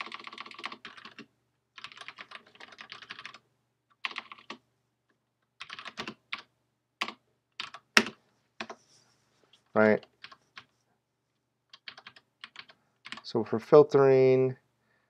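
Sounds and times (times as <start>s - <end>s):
typing on computer keyboard: 0.0s - 4.6s, 5.6s - 8.8s, 10.0s - 10.7s, 11.7s - 13.3s.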